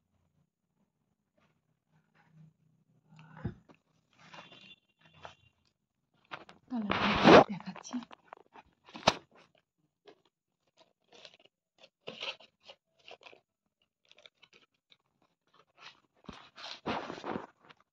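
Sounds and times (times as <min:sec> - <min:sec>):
fabric rustling against phone: 0:06.3 - 0:08.2, 0:16.4 - 0:17.8.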